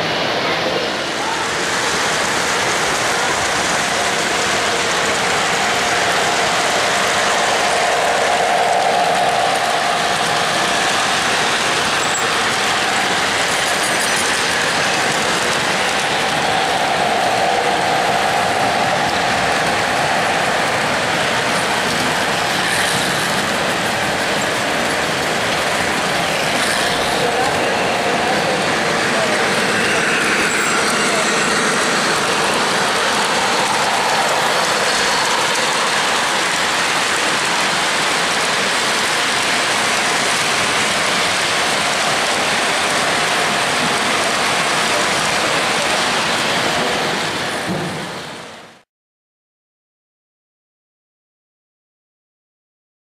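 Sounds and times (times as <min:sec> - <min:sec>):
model train wheels and motors: 0:00.0 - 0:48.8.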